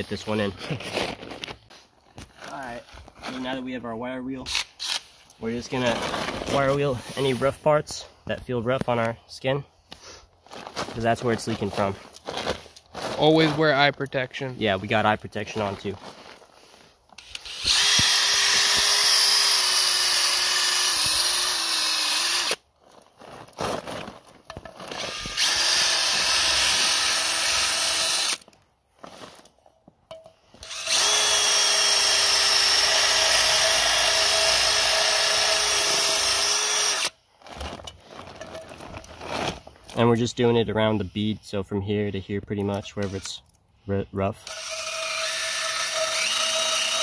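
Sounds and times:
drill with wire brush scratching: 0:04.4 - 0:07.8, 0:17.2 - 0:22.6, 0:24.8 - 0:29.4, 0:30.6 - 0:39.7, 0:42.8 - 0:43.4, 0:44.4 - 0:47.0.

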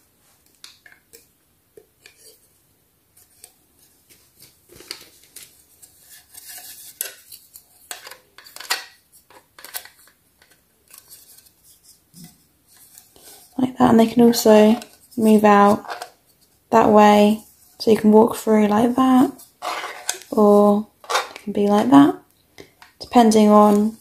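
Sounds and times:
plastic pieces clicking and scraping: 0:06.1 - 0:11.6, 0:14.6 - 0:16.2, 0:19.6 - 0:20.4, 0:21.0 - 0:21.5.

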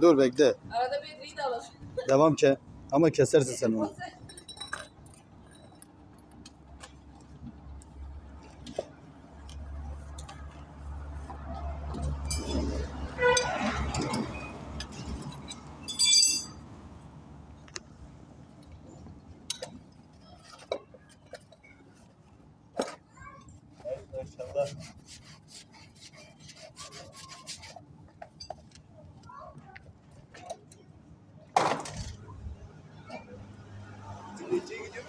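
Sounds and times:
metal hand tools clinking: 0:13.4 - 0:16.6.

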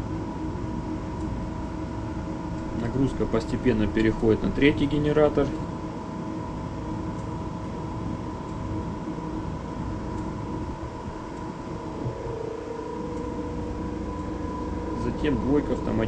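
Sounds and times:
engine room machinery drone: 0:00.0 - 0:16.0
steady high tone: 0:10.4 - 0:16.0.

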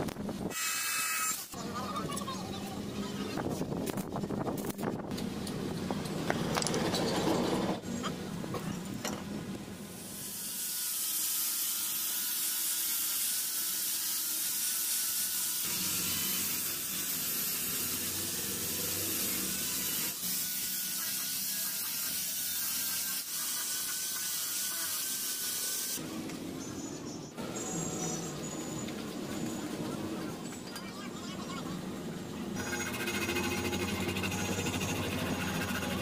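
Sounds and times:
sanding disc hissing on wood: 0:10.1 - 0:26.0, 0:32.6 - 0:36.0.

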